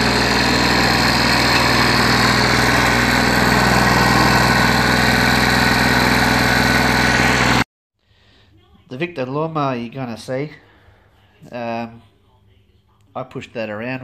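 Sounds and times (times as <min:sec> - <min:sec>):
lawnmower engine running: 0:00.0 - 0:07.7.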